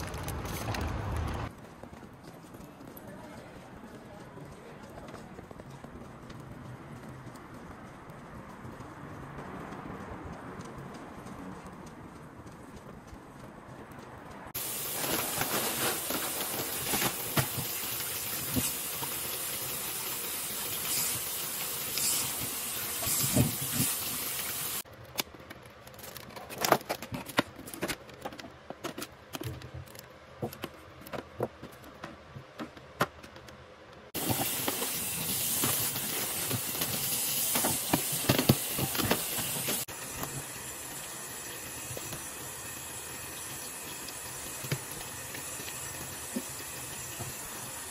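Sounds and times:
plastic packaging crinkling: 0.0s - 1.5s, 14.6s - 18.7s
steady hiss: 14.6s - 24.8s, 34.2s - 47.9s.

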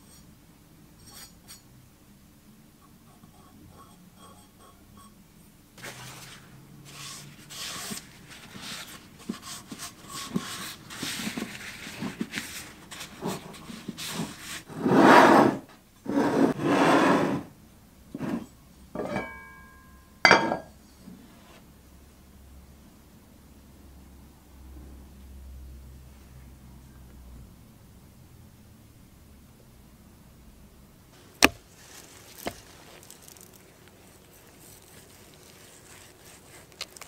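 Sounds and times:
paper towel wiping: 5.8s - 15.4s, 31.2s - 37.0s
cast iron lid clanking on pan: 19.0s - 20.7s.

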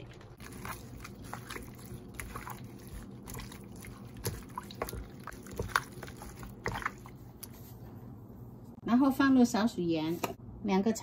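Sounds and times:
wet squelching of raw meat: 0.0s - 7.6s.

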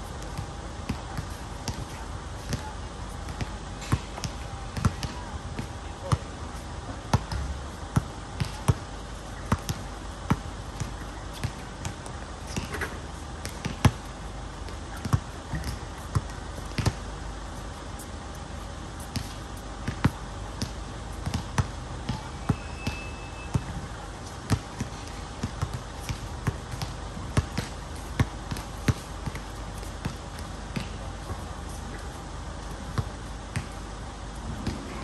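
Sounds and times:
basketball bouncing on hard court: 9.5s - 11.9s, 14.9s - 17.0s, 19.1s - 23.7s, 24.5s - 31.4s, 34.6s - 34.9s.

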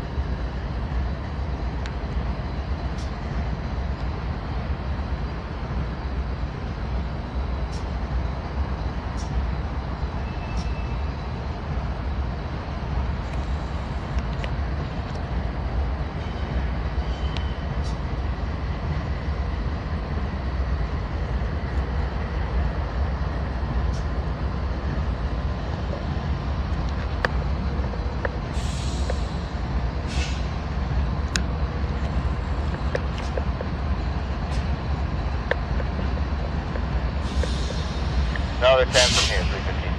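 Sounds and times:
diesel locomotives idling: 0.0s - 39.9s
air release hisses: 37.2s - 39.6s.

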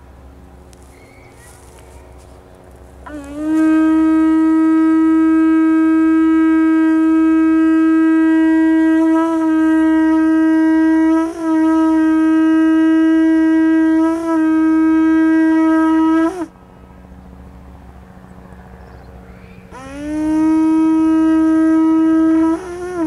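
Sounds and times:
hand horn long note: 3.0s - 16.6s, 19.7s - 23.0s.

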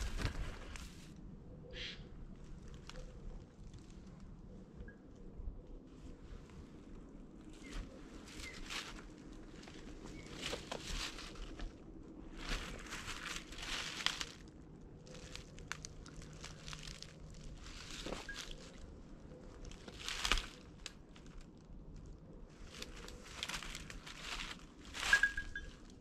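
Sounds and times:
brushing through undergrowth: 0.0s - 1.1s, 7.4s - 21.5s, 22.5s - 25.9s
footsteps crunching on dry leaves: 7.6s - 18.9s, 19.6s - 21.4s, 22.6s - 25.7s.

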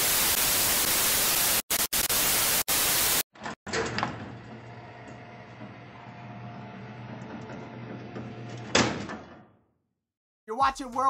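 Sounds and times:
tv static hiss: 0.0s - 3.2s
cell door clanking shut: 8.6s - 9.6s.

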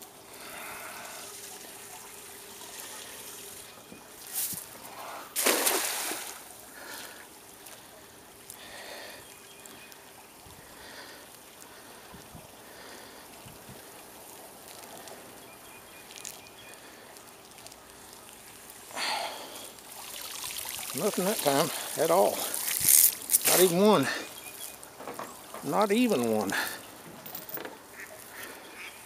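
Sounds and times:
low trickling water: 0.0s - 29.0s
net splashing into water: 5.3s - 6.6s, 18.8s - 24.1s.

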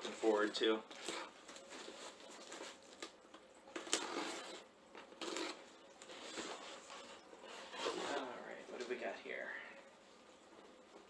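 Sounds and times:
cardboard scraping and rustling: 5.2s - 8.4s.

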